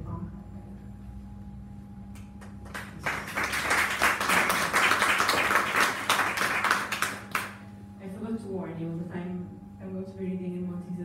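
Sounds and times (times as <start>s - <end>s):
audience applause: 2.7s - 7.6s.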